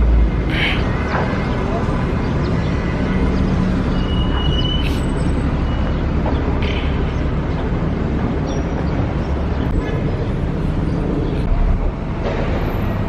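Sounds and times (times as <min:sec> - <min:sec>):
city background rumble: 0:00.0 - 0:13.0.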